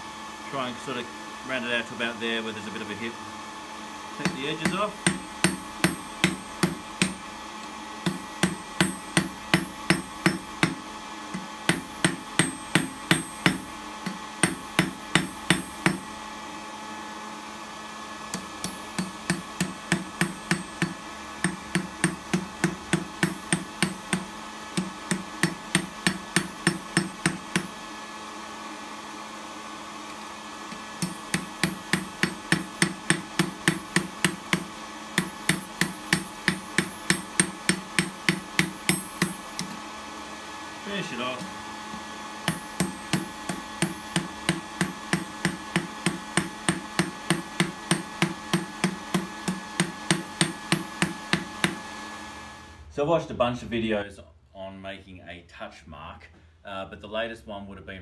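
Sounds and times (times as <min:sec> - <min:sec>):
hammer ringing on steel anvil: 0:11.7 - 0:13.6, 0:35.2 - 0:39.4.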